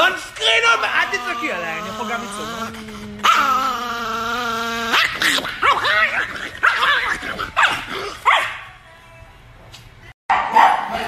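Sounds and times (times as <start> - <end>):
small dog yowling barks: 0.8 - 8.6.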